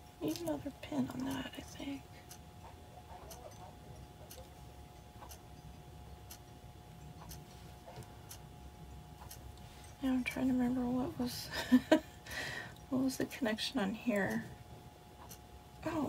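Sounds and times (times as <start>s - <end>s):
faint steady hum: 0.0s - 16.0s
clock ticking: 0.2s - 11.0s, 15.2s - 16.0s.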